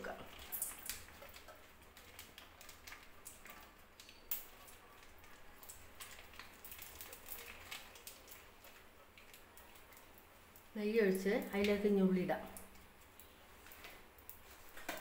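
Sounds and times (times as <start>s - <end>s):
plastic sachet crinkling: 0.3s - 10.1s.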